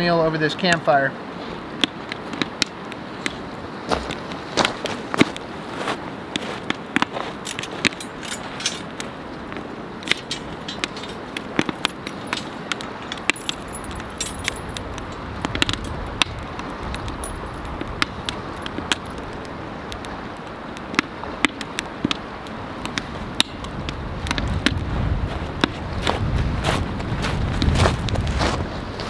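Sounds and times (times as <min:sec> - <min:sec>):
river water rushing: 0:01.0 - 0:23.6
wind rumbling on microphone: 0:01.3 - 0:29.0
wood fire crackling and popping: 0:06.3 - 0:24.9
metal chain jangling: 0:07.4 - 0:08.9, 0:10.0 - 0:15.2, 0:17.2 - 0:17.6.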